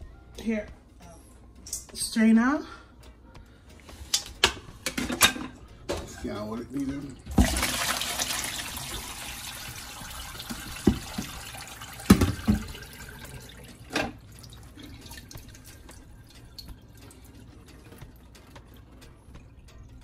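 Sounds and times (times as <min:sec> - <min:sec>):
water pouring through a strainer: 0:07.3 - 0:18.0.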